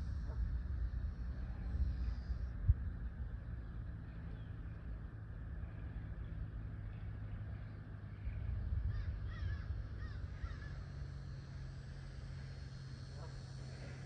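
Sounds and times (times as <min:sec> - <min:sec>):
steady low rumble: 0:00.0 - 0:14.0
bird calls: 0:08.1 - 0:11.2.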